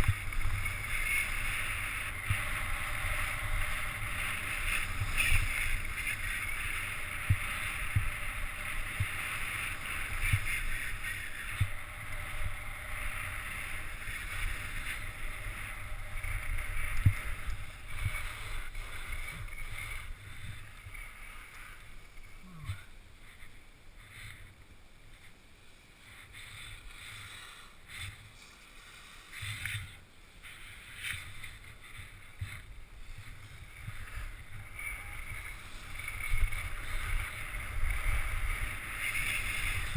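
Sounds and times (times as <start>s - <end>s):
wind rumbling on microphone: 0.0s - 25.4s, 26.0s - 39.9s
skis scraping over snow: 0.0s - 39.9s.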